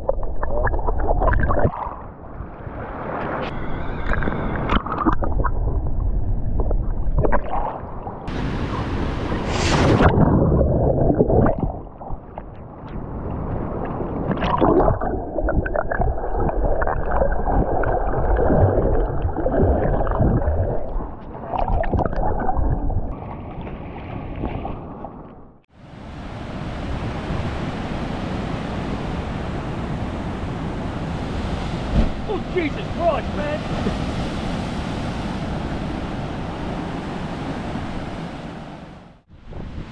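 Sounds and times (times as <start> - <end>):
surf hiss: 25.8 - 35.2
wind on microphone: 39.3 - 39.9.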